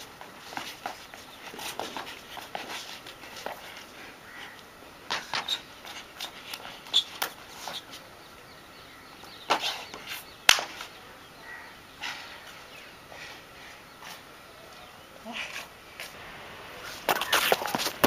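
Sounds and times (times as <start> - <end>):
hands and feet slapping ground: 9.4 - 11.0, 17.0 - 18.0.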